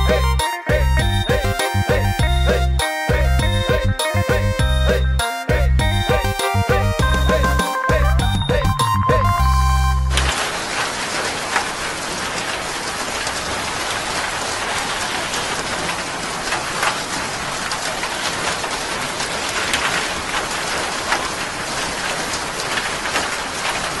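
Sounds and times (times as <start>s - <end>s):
water rushing and splashing: 10.1s - 24.0s.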